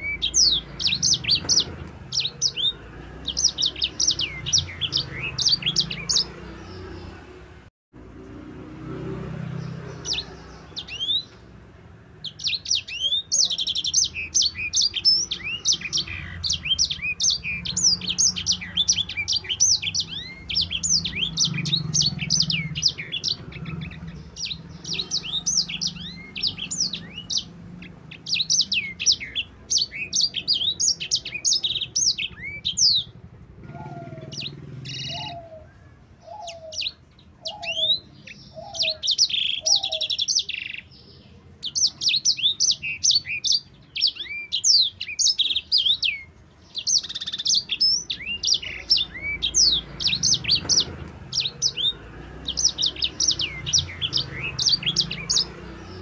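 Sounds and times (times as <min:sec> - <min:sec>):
finch singing chirps and trills: 0:00.0 - 0:07.4, 0:09.2 - 0:56.0.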